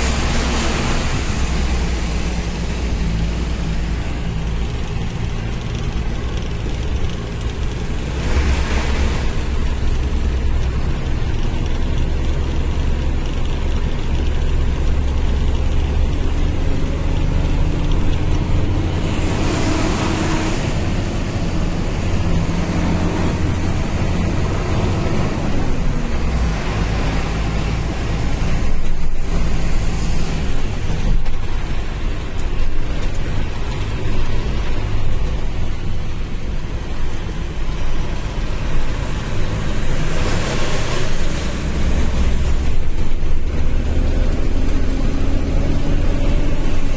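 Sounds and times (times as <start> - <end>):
rushing sound: 0.0 - 10.9, 38.4 - 46.9
truck engine running: 0.0 - 46.9
tyre noise on wet road: 0.0 - 46.9.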